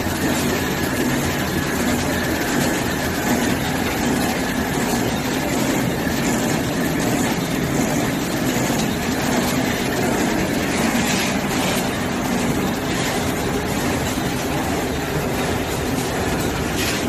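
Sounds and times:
wrapping machine clatter and hum: 0.0 - 17.0.

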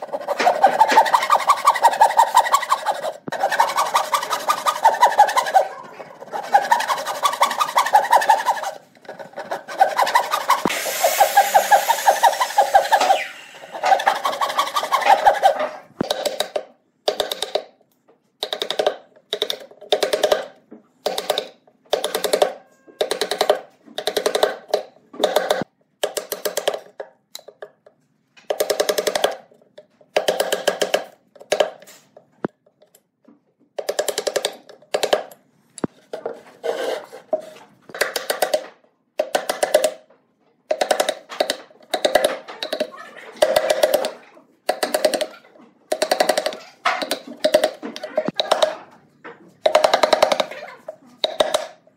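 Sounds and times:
hand saw on wood: 0.0 - 15.7
chisel scraping wood: 0.0 - 16.2, 36.4 - 37.7.

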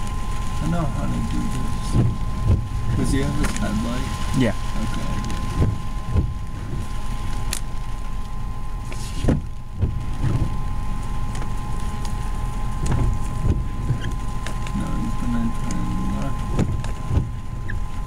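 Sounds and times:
engine idling rumble: 0.0 - 18.0
faint high whine: 0.0 - 18.0
soft thumps and knocks: 1.8 - 3.6, 5.5 - 7.0, 8.9 - 10.6, 12.8 - 14.6, 16.5 - 17.8.

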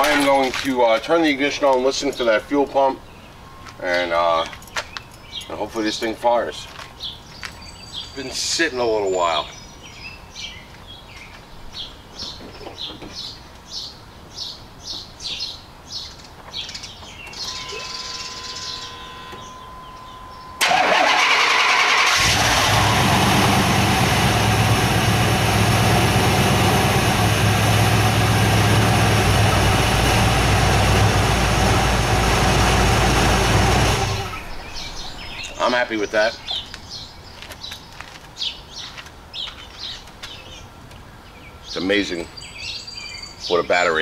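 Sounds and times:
steady tone: 17.4 - 20.7
car engine cranking and running: 18.8 - 35.5.

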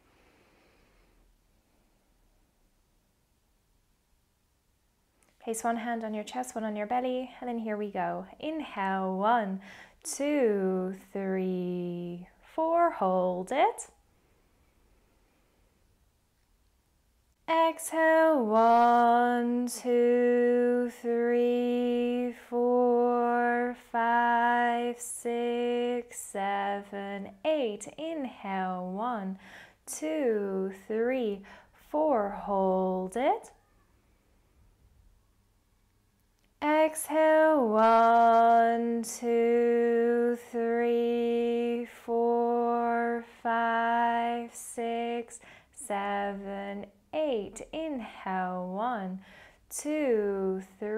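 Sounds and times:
woman speaking: 5.4 - 14.0, 26.0 - 33.6, 43.3 - 50.9
woman chanting long tones: 5.5 - 13.9, 17.5 - 33.8, 36.6 - 50.9
woman intoning numbers: 5.5 - 13.9, 29.9 - 33.7, 44.1 - 50.9.

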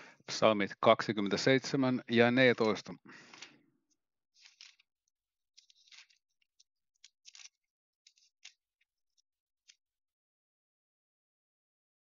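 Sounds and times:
pages rustling as turned: 2.5 - 3.6, 4.4 - 9.9.

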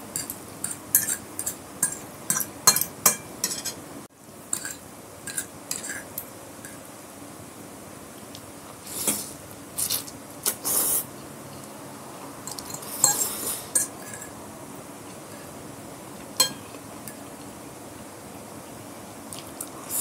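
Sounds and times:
cutlery clinking against glass bowl: 0.2 - 3.8, 4.5 - 6.8, 12.5 - 14.3, 16.4 - 17.3.

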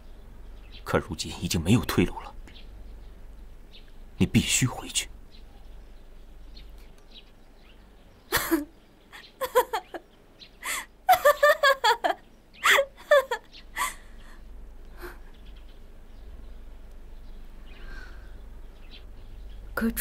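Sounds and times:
woman laughing tearfully: 8.3 - 10.0, 10.6 - 14.4.

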